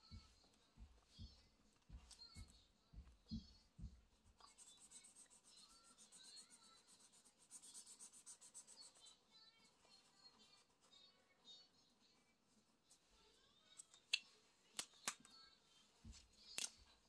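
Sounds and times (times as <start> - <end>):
soft low thumps: 0.0 - 4.4
marker scratching on paper: 4.4 - 9.2.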